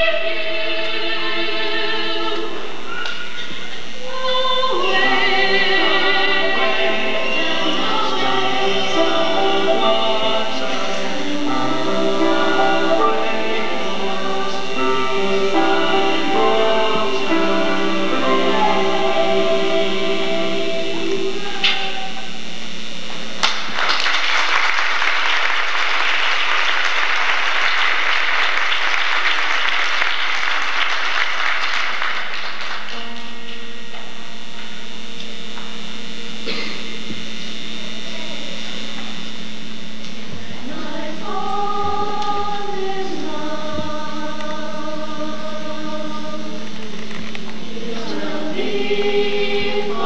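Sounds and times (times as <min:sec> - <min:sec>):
choir singing held chords: 0:00.0 - 0:23.0, 0:24.6 - 0:33.3, 0:39.4 - 0:50.0
audience applause: 0:23.4 - 0:33.2.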